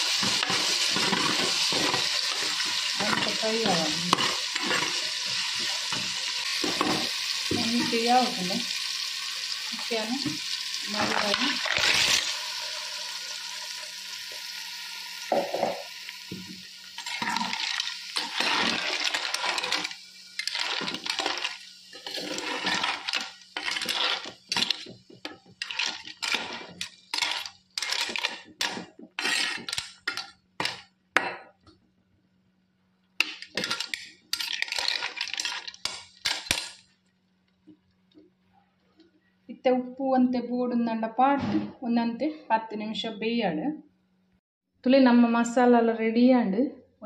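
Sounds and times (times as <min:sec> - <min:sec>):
clam shells clinking in a pot: 0:00.0 - 0:08.0, 0:17.0 - 0:31.3, 0:33.2 - 0:36.9
frying sizzle: 0:00.0 - 0:30.9, 0:33.2 - 0:36.9.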